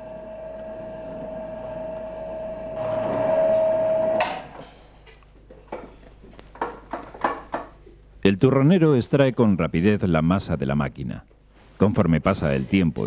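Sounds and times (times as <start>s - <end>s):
electric mixer humming: 0.0s - 4.2s.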